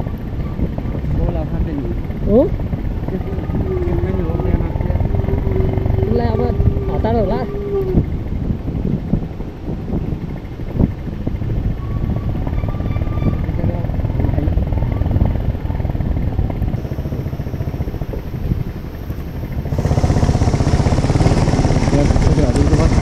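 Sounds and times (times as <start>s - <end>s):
vehicle engine running: 0.0s - 23.0s.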